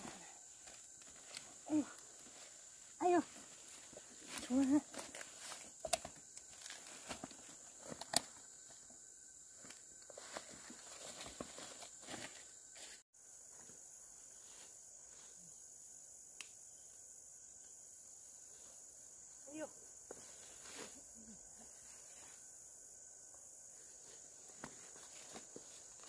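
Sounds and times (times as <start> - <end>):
insect drone: 0.0 - 26.0.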